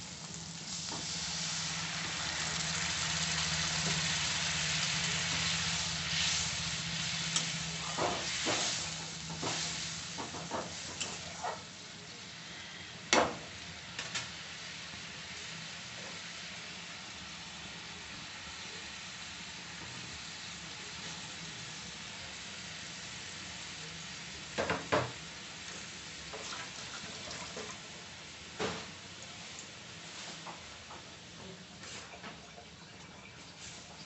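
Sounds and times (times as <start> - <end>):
gravy simmering and sizzling: 0.0 - 34.0.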